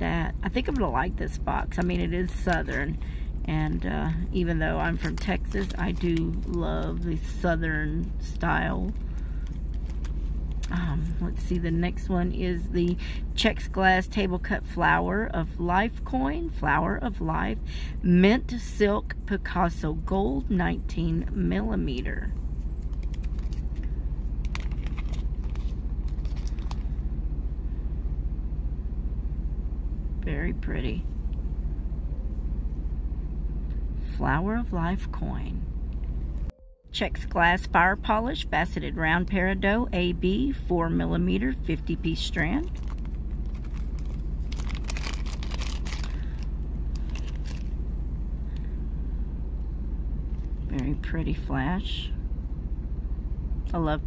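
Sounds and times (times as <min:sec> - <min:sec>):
low rumble: 0:00.0 - 0:54.0
plastic bag crinkling: 0:04.7 - 0:07.4, 0:08.9 - 0:10.7, 0:22.8 - 0:27.0, 0:42.6 - 0:47.8.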